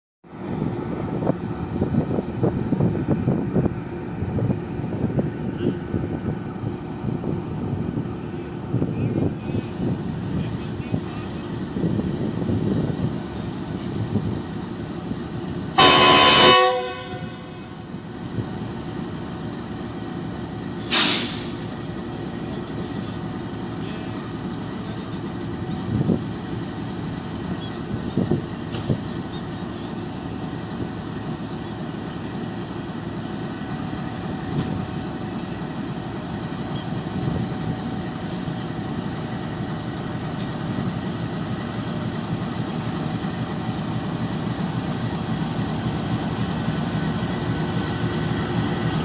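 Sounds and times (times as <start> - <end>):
diesel locomotive engine droning: 0.2 - 49.0
air hiss: 20.8 - 21.7.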